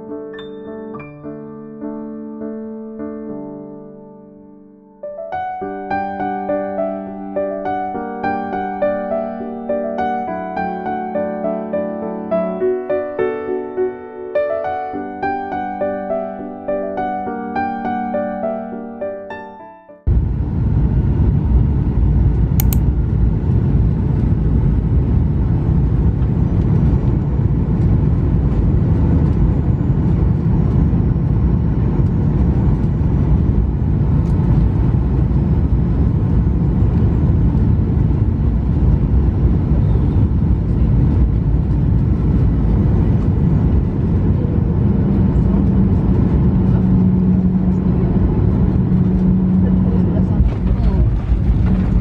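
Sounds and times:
jet engine and airflow rumble: 20.1 - 52.0.

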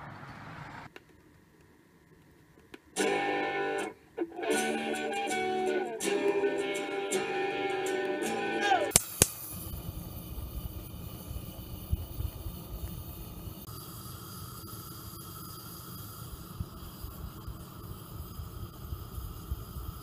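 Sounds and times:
sharp click: 8.9 - 9.5
gas burner flame rumbling: 8.9 - 20.0.

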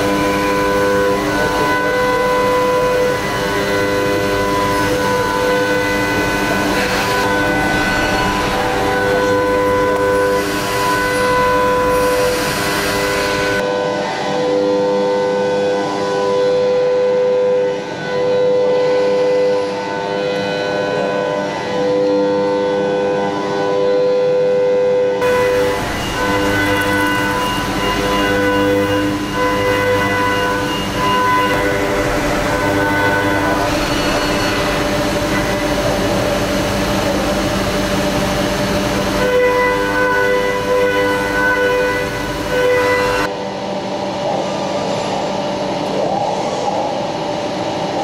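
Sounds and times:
milling spindles whining: 0.0 - 13.6, 25.2 - 43.3
metal cutting noise: 0.0 - 14.8, 25.2 - 48.0.

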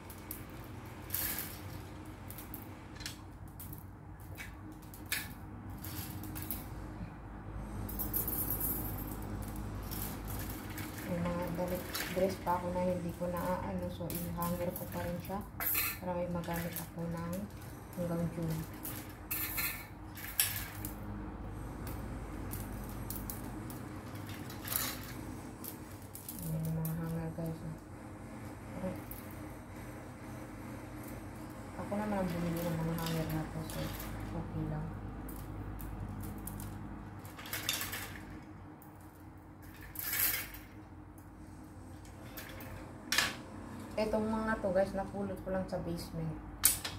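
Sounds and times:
wire hangers clinking and scraping: 0.0 - 6.8, 7.6 - 21.0, 21.6 - 27.8, 31.0 - 41.3, 41.9 - 44.2
steady low hum: 0.0 - 46.9
wire hangers clinking together: 8.0 - 21.0, 32.0 - 34.4.

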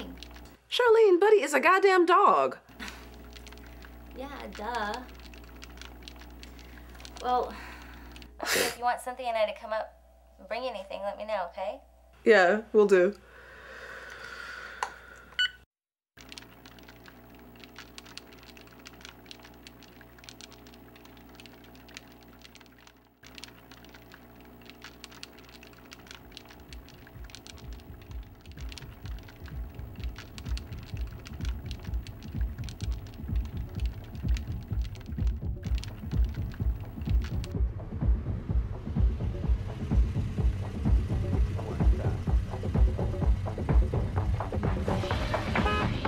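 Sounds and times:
cordless phone beep: 15.4 - 15.7
low hum: 16.5 - 45.6
low even beat: 27.1 - 46.0.

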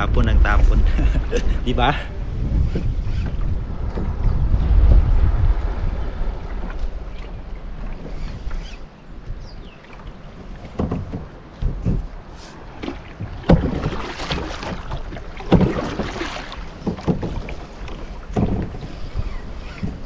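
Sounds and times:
water splashing against hull: 0.0 - 20.0
irregular knocks: 10.7 - 12.1, 16.8 - 17.5.

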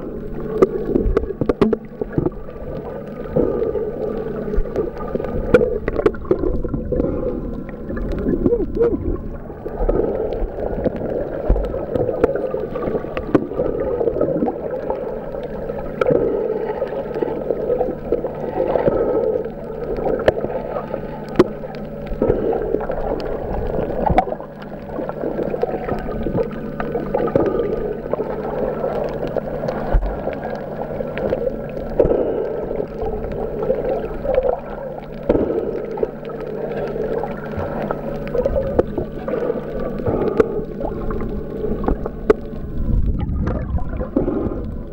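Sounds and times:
steady low hum: 0.0 - 44.9
underwater bubbling: 0.0 - 44.9.

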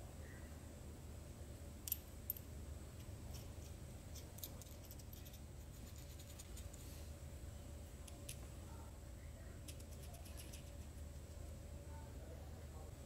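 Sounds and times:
steel nuts and washers clicking: 1.8 - 5.4.

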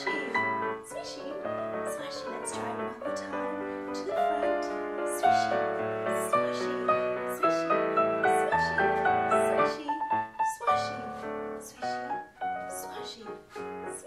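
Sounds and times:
piano music with steady beat: 0.0 - 14.0.

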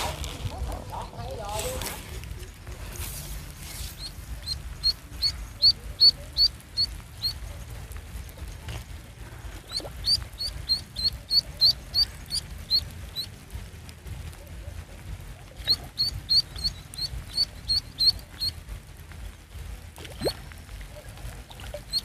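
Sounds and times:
duckling peeping: 3.9 - 7.4, 9.6 - 13.3, 15.5 - 18.6, 21.6 - 22.0.

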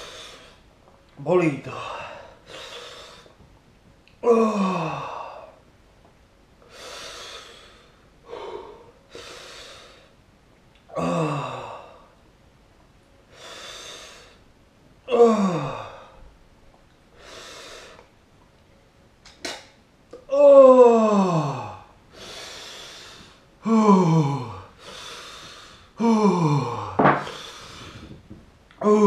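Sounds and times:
man breathing hard: 0.0 - 0.7, 1.7 - 3.4, 6.6 - 10.2, 13.3 - 14.4, 17.2 - 18.1, 21.1 - 28.3
moaning sighs: 4.2 - 5.6, 6.7 - 10.1, 10.9 - 12.1, 15.1 - 16.2, 20.2 - 28.2, 28.8 - 29.0.

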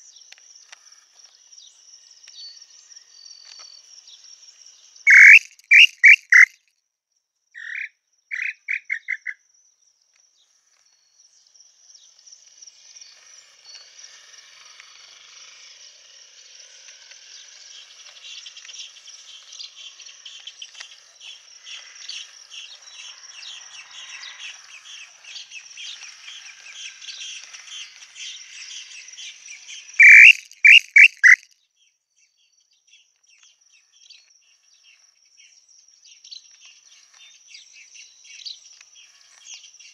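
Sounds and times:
high-pitched insect hum: 0.0 - 6.6, 7.6 - 31.4
insects and small birds chirping: 0.0 - 39.9
bird whistled calls: 5.1 - 6.5, 7.6 - 9.4, 30.0 - 31.4.

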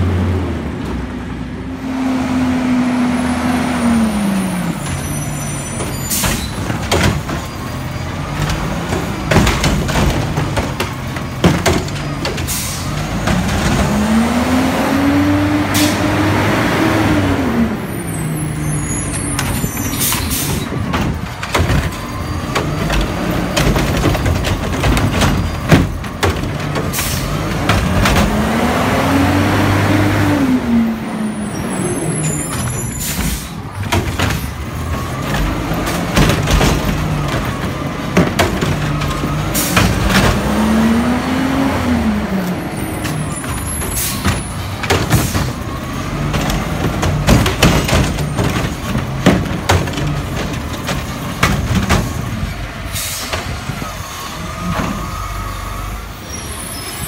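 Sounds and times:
diesel engine revving: 0.0 - 57.0
sharp knocks and bangs: 5.8 - 17.0, 19.2 - 30.4, 32.5 - 42.3, 43.0 - 53.9
air brakes hissing: 12.5 - 13.0, 18.8 - 20.8, 31.4 - 33.7, 52.8 - 57.0.

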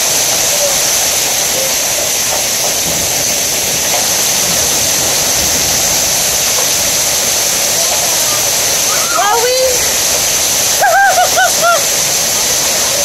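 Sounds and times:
hail and heavy rain pelting: 0.0 - 13.0.

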